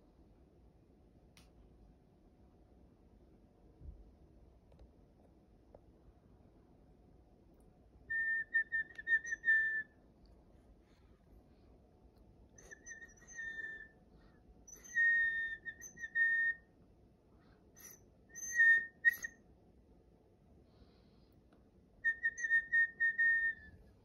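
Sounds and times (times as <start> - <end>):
toy penguin whistling: 8.2 - 9.9, 12.6 - 13.9, 14.7 - 16.6, 17.8 - 19.4, 22.1 - 23.7.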